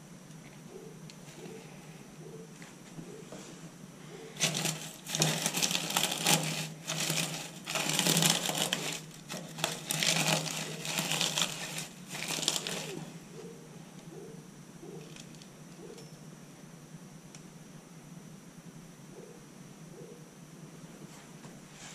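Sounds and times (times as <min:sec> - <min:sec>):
straw crackling and rustling: 0:04.2 - 0:13.5.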